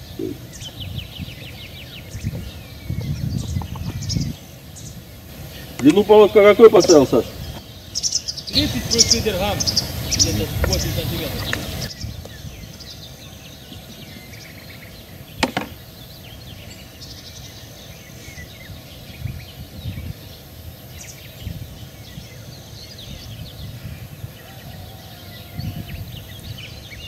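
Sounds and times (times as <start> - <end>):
faint bird chirps: 0.0 - 6.0
low riverside rumble: 0.0 - 17.0.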